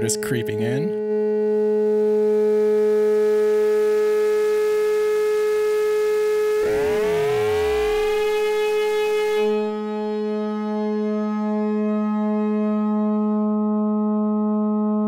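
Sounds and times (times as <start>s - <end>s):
steady synth tone: 6.3s - 14.2s
synth noise hiss: 6.6s - 9.8s
gliding synth tones: 6.6s - 12.6s.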